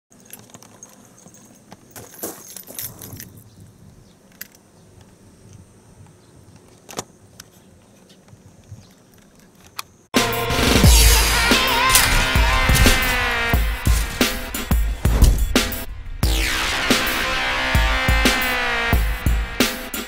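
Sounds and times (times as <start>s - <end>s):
light jingles: 0.1s - 4.6s
sharp clicks: 11.5s - 13.2s.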